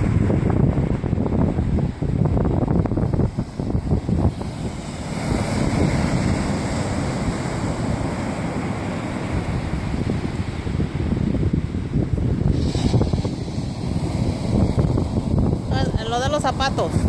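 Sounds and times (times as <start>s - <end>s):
ocean surf breaking on beach: 0.0s - 17.0s
wind buffeting microphone: 0.0s - 17.0s.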